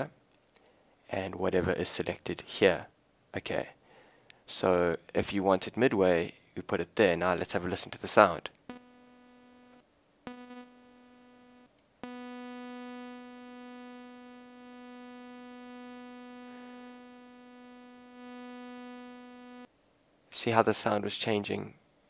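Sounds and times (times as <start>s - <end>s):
buzzy synth note: 8.7s - 19.7s.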